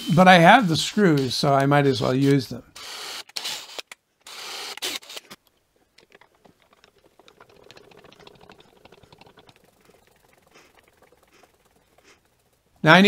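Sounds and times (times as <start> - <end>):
cordless drill: 2.7 - 5.4.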